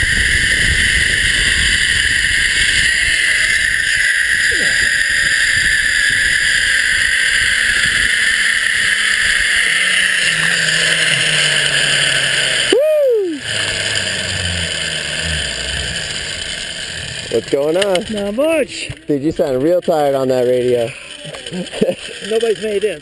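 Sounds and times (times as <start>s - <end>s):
low hum: 0.0s - 22.4s
zip-line trolley whirring: 0.0s - 23.0s.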